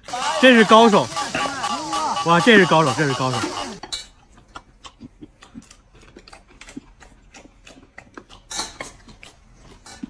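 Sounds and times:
chewing and mouth noises: 0:03.8 - 0:10.0.

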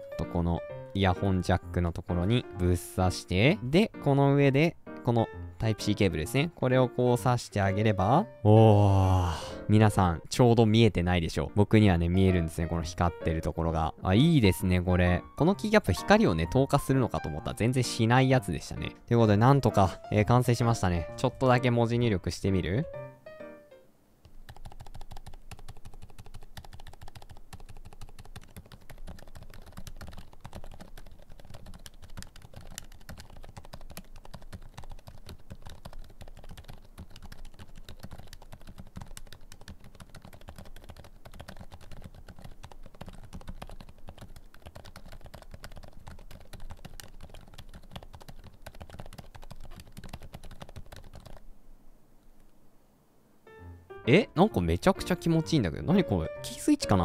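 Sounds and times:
quiet keyboard typing: 0:14.5 - 0:22.9, 0:24.2 - 0:51.5.

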